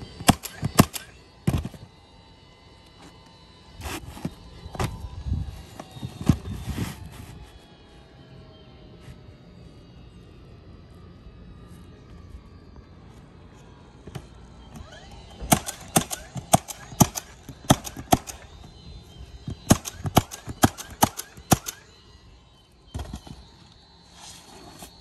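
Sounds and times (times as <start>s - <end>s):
nails driven into roof shingles: 0.2s - 1.9s.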